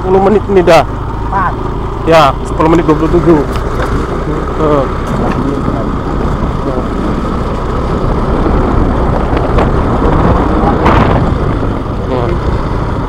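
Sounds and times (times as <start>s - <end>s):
motorcycle engine running: 0.0s - 13.0s
wind noise on microphone: 5.0s - 13.0s.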